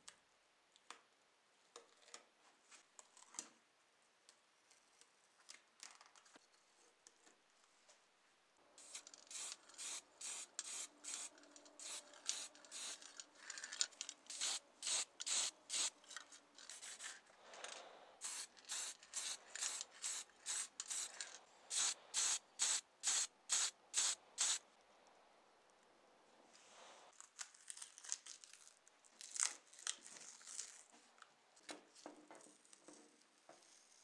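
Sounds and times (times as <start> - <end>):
spray paint can hissing: 8.8 - 13.1, 14.3 - 16.0, 18.2 - 24.6.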